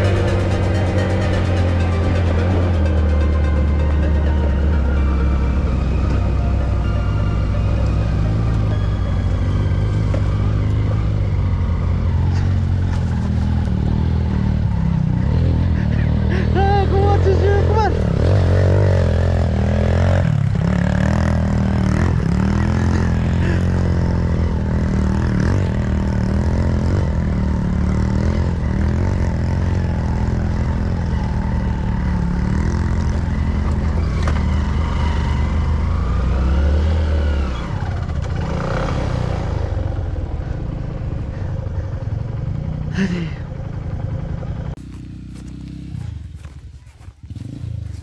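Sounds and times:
dirt bike engine running: 0.0 - 48.0.

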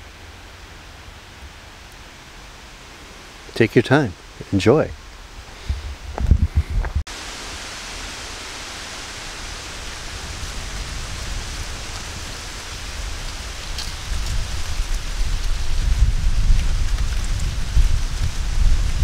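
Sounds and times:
wind hissing in trees: 0.0 - 19.0
wind rumbling on microphone: 4.3 - 19.0.

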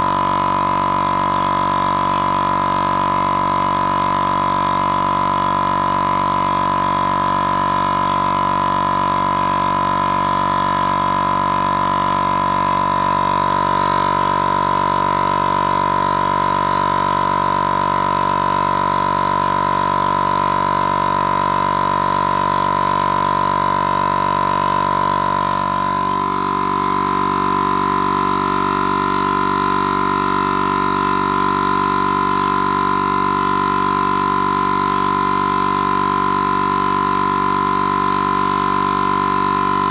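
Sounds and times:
air compressor humming: 0.0 - 39.9.

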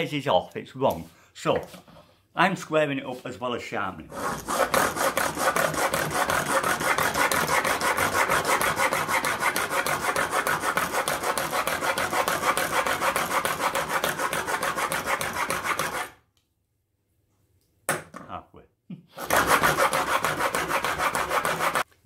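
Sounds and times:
chisel rasping on sharpening plate: 4.1 - 16.1, 19.2 - 21.8.

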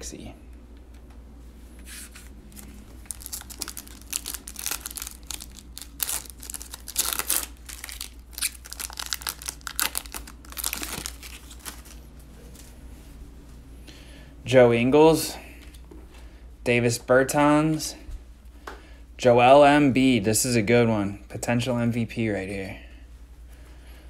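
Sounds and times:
foil wrapper tearing and crinkling: 2.5 - 12.0.

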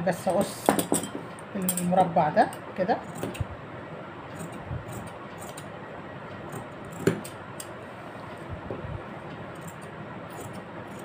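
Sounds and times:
scissors snipping fabric: 3.0 - 3.4, 4.3 - 5.7, 6.4 - 7.4, 9.5 - 11.0.

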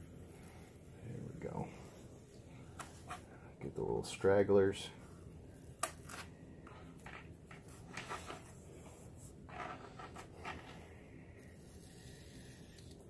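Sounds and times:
knife scraping foam board: 11.5 - 13.0.

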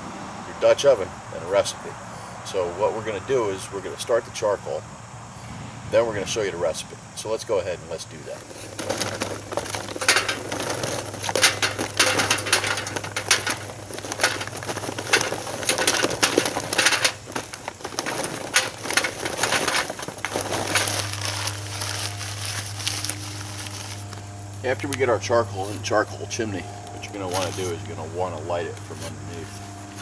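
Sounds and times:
newspaper rustling: 8.3 - 24.3, 27.2 - 27.8
charcoal clattering into metal chimney: 8.3 - 28.0.

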